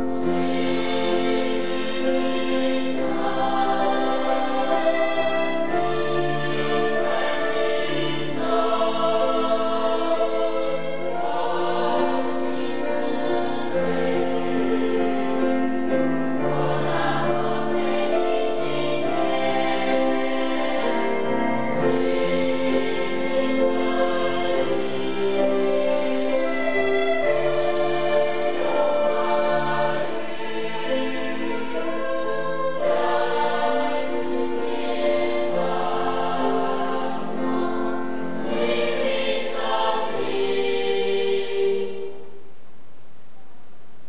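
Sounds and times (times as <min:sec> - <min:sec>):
children's choir singing: 0:00.0 - 0:42.5.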